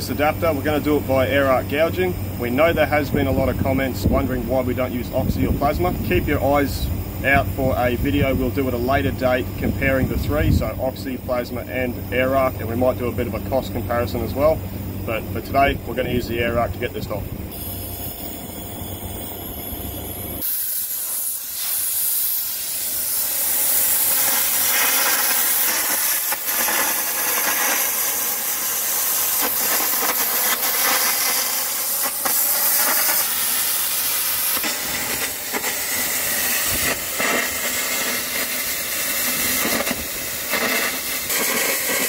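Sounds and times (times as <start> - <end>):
air arc gouging hiss and crackle: 0.0 - 42.0.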